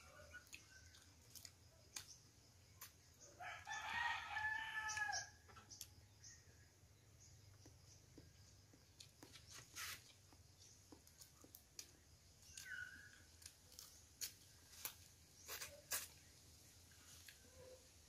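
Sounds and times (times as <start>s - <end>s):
person chewing: 0.3s - 2.2s, 8.9s - 16.2s.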